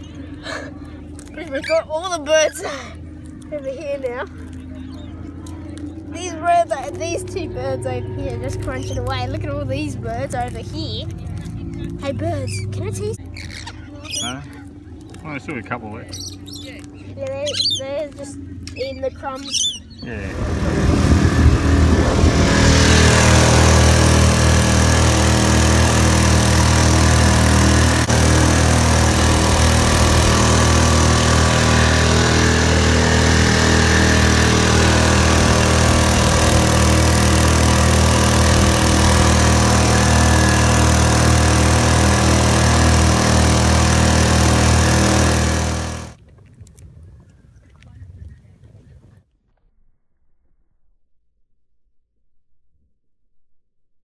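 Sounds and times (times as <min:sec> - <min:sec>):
outboard motor running: 0:00.0 - 0:46.8
water rushing along hull: 0:20.0 - 0:46.2.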